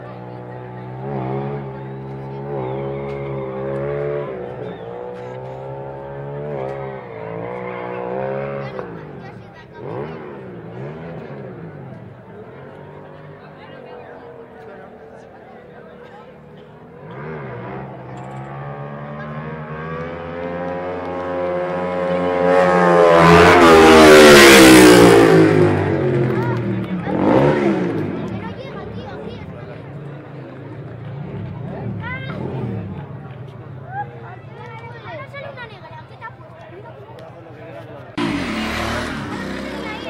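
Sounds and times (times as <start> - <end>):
motorcycle engine at high revs: 0.0 - 12.1, 17.0 - 28.6, 31.1 - 33.3, 38.2 - 40.0.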